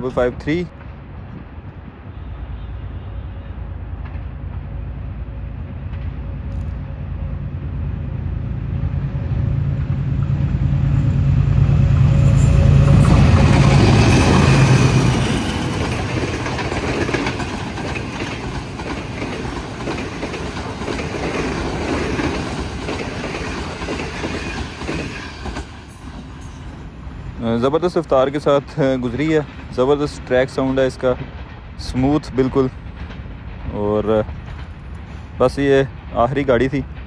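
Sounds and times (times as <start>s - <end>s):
locomotive engine drone: 2.5s - 30.7s
train wheels clacking on track: 9.6s - 26.8s, 27.7s - 37.0s.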